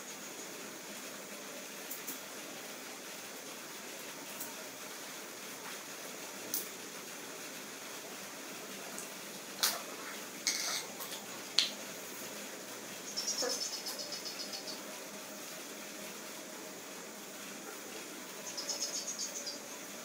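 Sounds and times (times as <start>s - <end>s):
cricket chirping: 13.0s - 14.9s, 17.7s - 20.0s.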